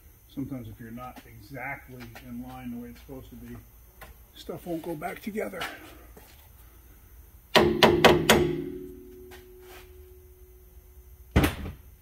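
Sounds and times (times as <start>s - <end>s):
metallic ringing tone: 8.4s - 10.7s.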